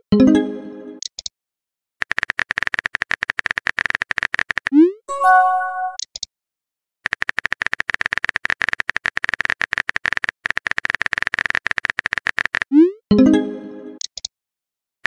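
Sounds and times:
multi-note message chime: 5.1 - 6.0, 13.1 - 14.0.

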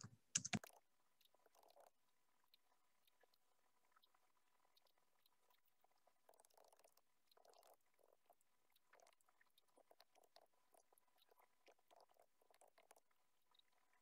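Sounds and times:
faint keyboard typing: 0.0 - 1.9.

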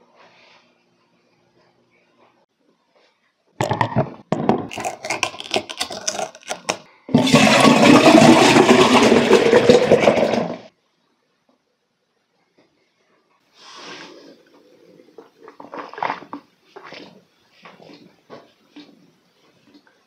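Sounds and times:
juice pouring into a glass: 4.7 - 10.7.

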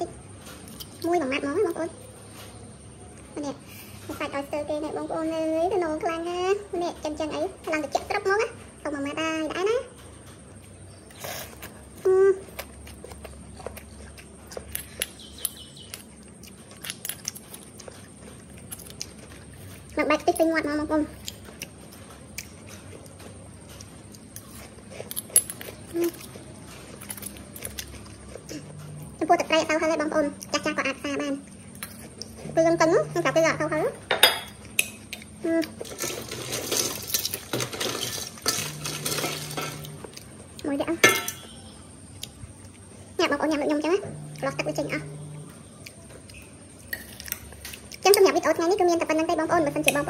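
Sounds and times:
oysters clinking in steel bowl: 35.8 - 40.0, 41.0 - 41.6.

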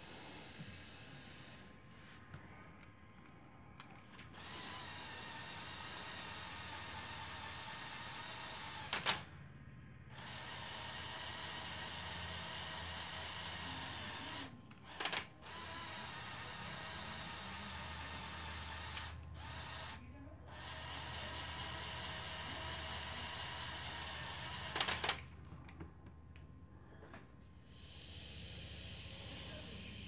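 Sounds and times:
toy motor and gears whining: 4.1 - 9.3, 10.1 - 25.3, 27.6 - 30.0
loud sharp clicks: 8.7 - 9.3, 14.8 - 15.3, 24.5 - 25.3.

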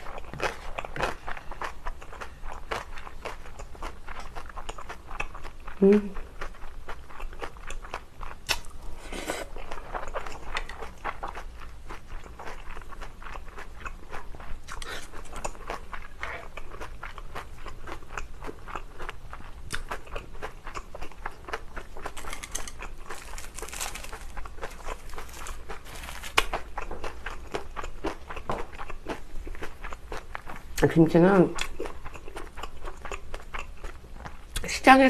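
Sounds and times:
wet chewing with clicks: 0.0 - 8.7, 9.6 - 34.7
dried seaweed rustling: 22.1 - 26.7.

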